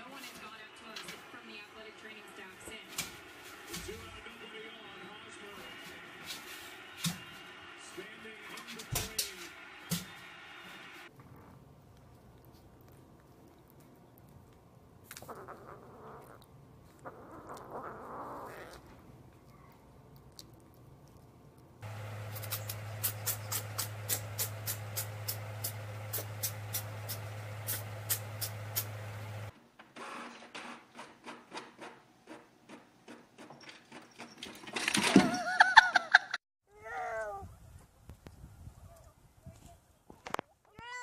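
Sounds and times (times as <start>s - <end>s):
steady low hum: 19.1s - 29.5s.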